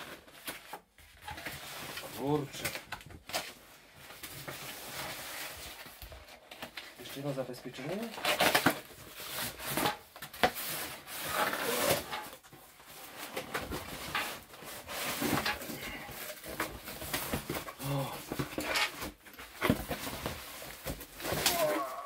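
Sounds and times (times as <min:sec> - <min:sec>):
cardboard box tearing: 0:08.1 - 0:12.4, 0:13.2 - 0:22.0.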